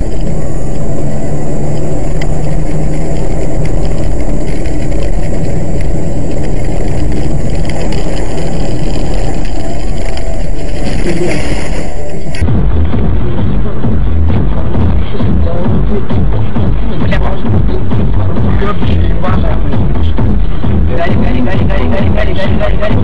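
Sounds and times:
car engine and road noise: 0.0s - 23.0s
low hum: 0.0s - 23.0s.

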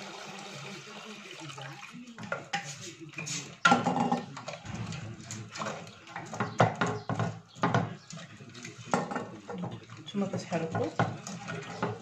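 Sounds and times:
liquid bubbling in a pot: 0.0s - 12.0s
wooden spoon knocking a pot: 3.6s - 8.1s, 8.9s - 12.0s.

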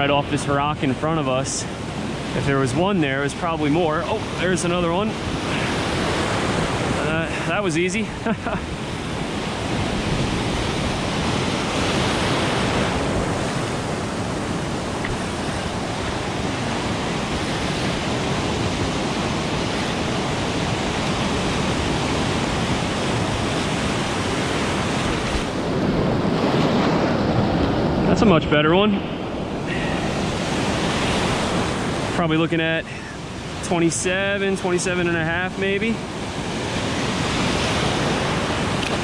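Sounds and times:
ocean surf washing around rocks: 0.0s - 39.0s.

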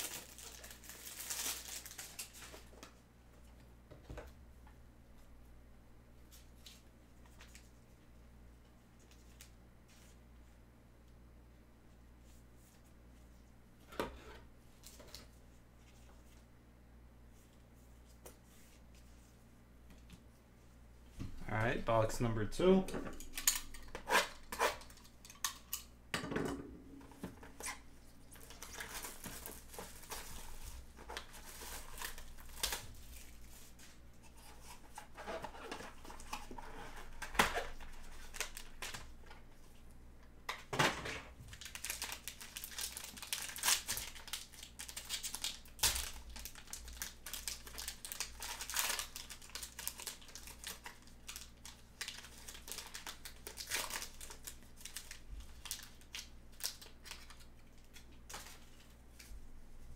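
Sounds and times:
foil pack crinkling: 0.0s - 2.8s, 27.5s - 33.8s, 34.4s - 39.2s, 41.5s - 59.0s.

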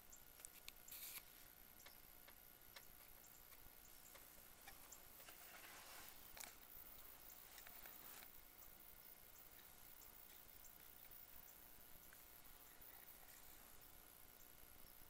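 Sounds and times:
soft rustle: 3.0s - 8.5s.

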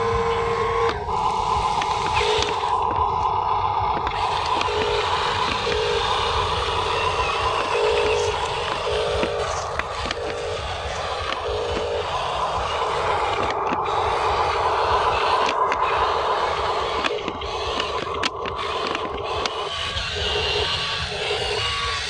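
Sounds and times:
small electric motors whirring: 0.0s - 22.0s.

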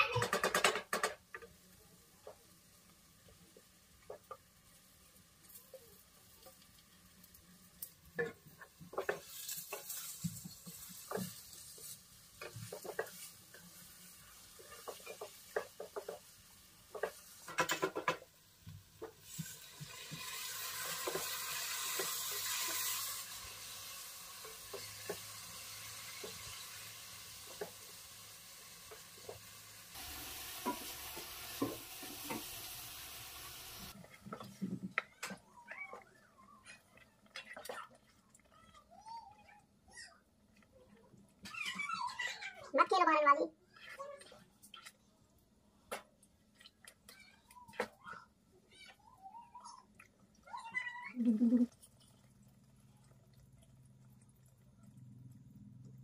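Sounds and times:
sizzling hiss: 1.4s - 34.4s
spatula scraping in frying pan: 8.1s - 18.2s, 19.0s - 36.0s.

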